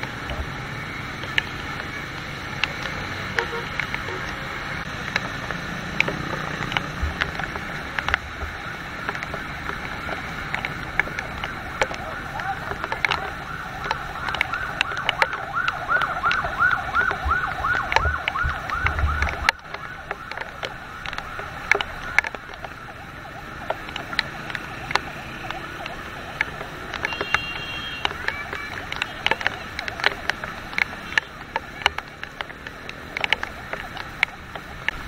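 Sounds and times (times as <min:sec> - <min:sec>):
rain hiss: 0:00.0 - 0:35.0
traffic: 0:00.0 - 0:35.0
sharp ticks and taps: 0:01.1 - 0:35.0
siren yelping: 0:07.5 - 0:32.4.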